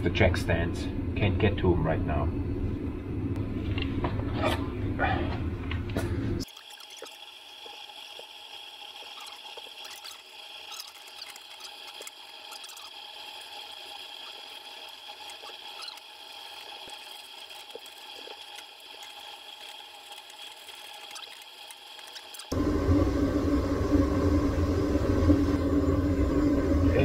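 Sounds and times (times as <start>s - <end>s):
low background hum: 0.0s - 27.0s
faint high whine: 22.5s - 27.0s.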